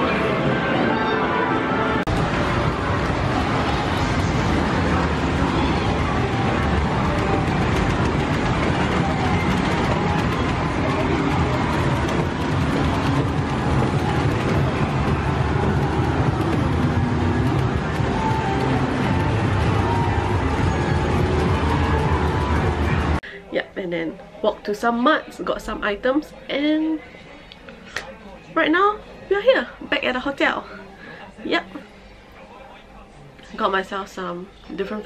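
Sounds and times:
arcade game music and effects: 0.0s - 23.2s.

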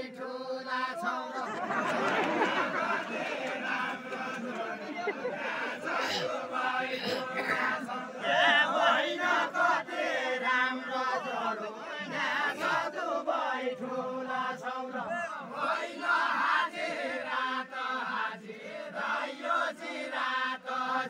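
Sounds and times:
men singing together: 0.0s - 21.0s
crowd voices: 1.0s - 15.7s.

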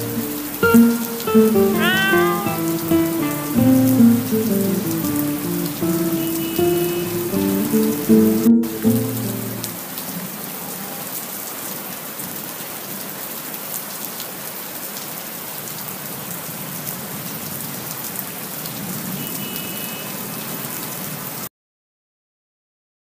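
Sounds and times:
raindrop ticks: 0.0s - 1.9s
steady rain hiss: 0.0s - 21.5s.

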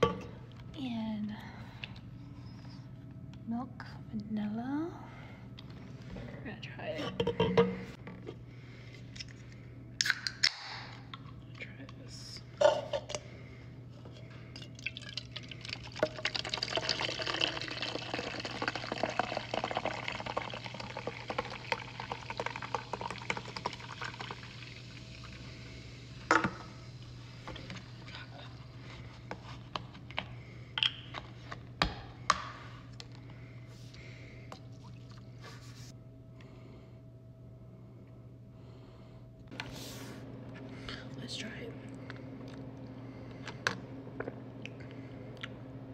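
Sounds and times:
fizzy drink pouring into metal cup: 14.8s - 25.3s
creamer pouring: 14.8s - 25.4s.

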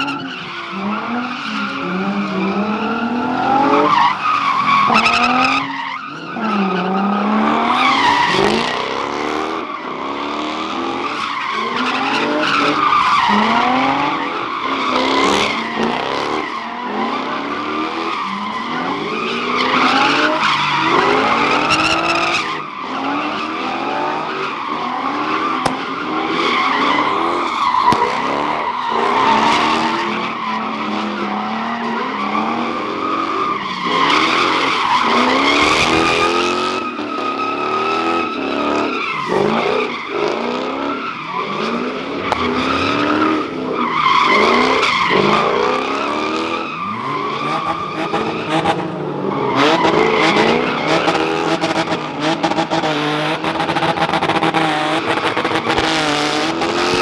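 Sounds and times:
tires squealing: 0.0s - 57.0s
car engine revving: 32.4s - 57.0s.

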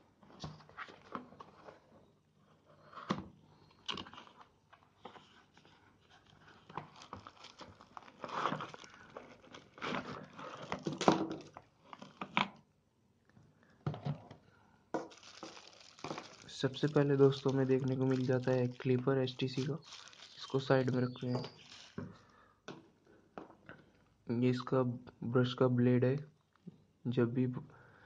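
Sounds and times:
cardboard packaging rustling: 3.6s - 12.5s, 15.0s - 22.1s.

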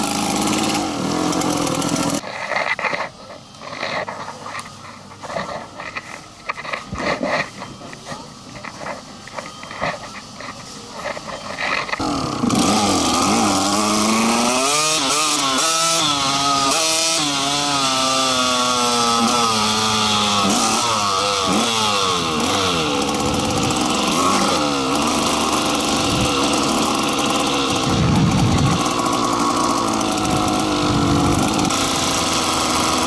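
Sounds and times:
small petrol engine revving: 0.0s - 2.2s, 11.2s - 33.0s.

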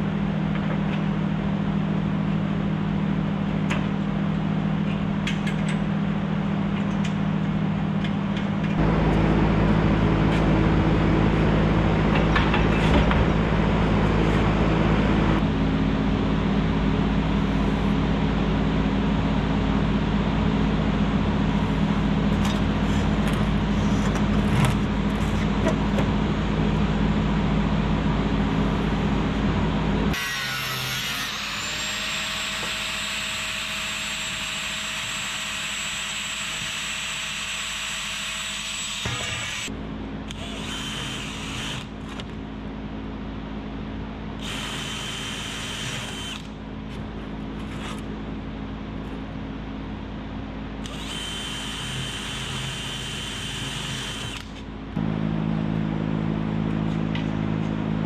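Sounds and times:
loud machine hum: 0.0s - 58.0s
angle grinder whining: 30.1s - 39.7s, 40.3s - 41.9s, 44.4s - 46.5s, 50.8s - 54.6s.

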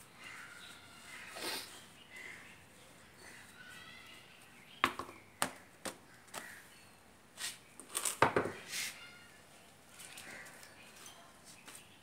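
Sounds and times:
knocks on concrete floor: 4.8s - 6.0s, 8.2s - 8.6s
scrape on concrete floor: 7.4s - 7.6s, 8.6s - 9.1s.

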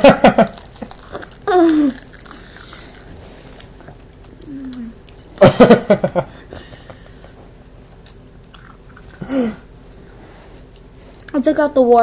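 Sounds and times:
person laughing: 0.0s - 0.6s, 5.4s - 6.5s.

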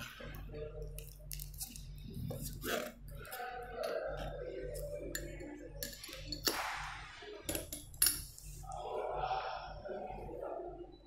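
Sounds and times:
glassware clinking: 3.8s - 6.7s, 7.5s - 8.5s.

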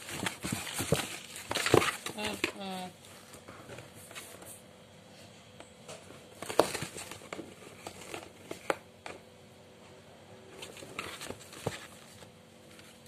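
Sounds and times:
paper crinkling and rustling: 0.0s - 4.6s, 6.3s - 8.8s, 10.6s - 13.0s.

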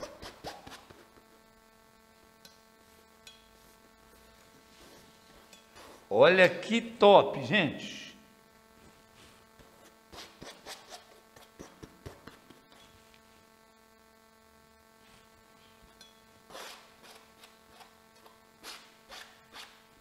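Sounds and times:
faint hum: 0.0s - 20.0s
palette knife scraping oil paint: 9.2s - 13.1s, 16.5s - 19.8s.

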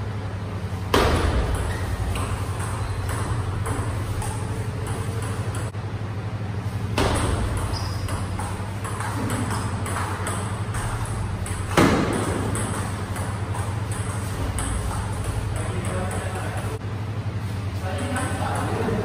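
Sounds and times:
table tennis ball clicking: 1.5s - 5.7s.

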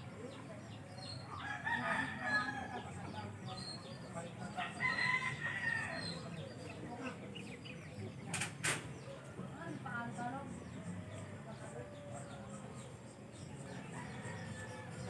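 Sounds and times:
rooster crowing: 1.4s - 2.9s, 4.6s - 6.2s, 13.7s - 15.0s.

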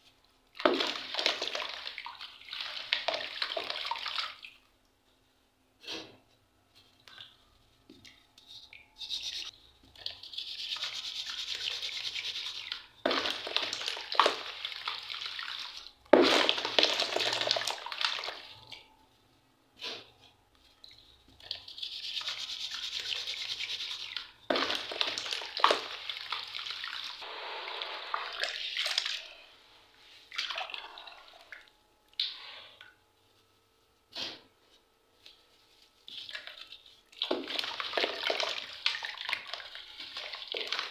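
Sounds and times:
water splashing: 22.2s - 29.4s, 36.2s - 40.9s.

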